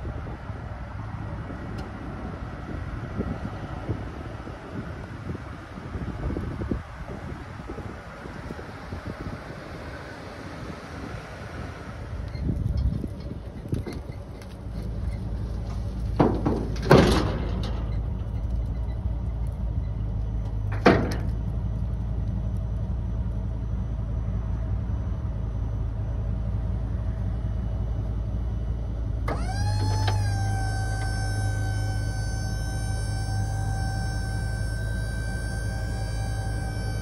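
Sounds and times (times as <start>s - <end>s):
steady low hum: 0.0s - 37.0s
metal liftgate clanks: 16.2s - 18.2s, 20.7s - 21.4s
multi-tone motor whine: 21.8s - 37.0s.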